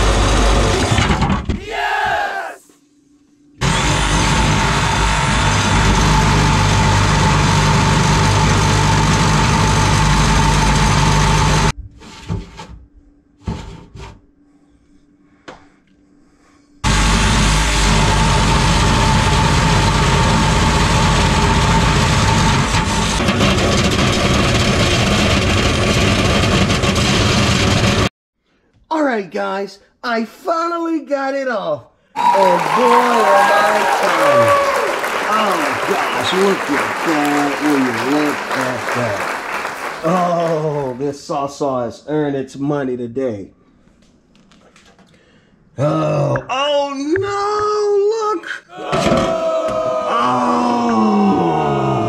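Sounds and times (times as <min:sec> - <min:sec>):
reciprocating saw cutting metal: 0:16.8 - 0:28.1.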